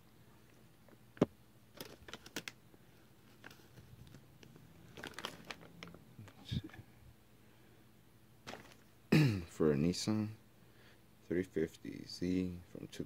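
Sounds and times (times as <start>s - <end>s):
plastic bag crinkling: 1.7s - 2.6s, 3.2s - 6.5s, 8.5s - 8.9s.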